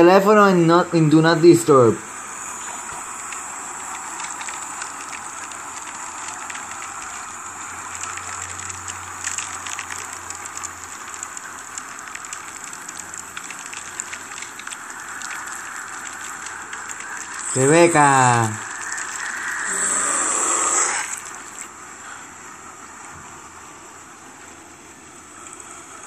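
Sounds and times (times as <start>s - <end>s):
steady hiss: 0.0s - 26.0s
faint clicks: 2.6s - 17.5s, 25.2s - 26.0s.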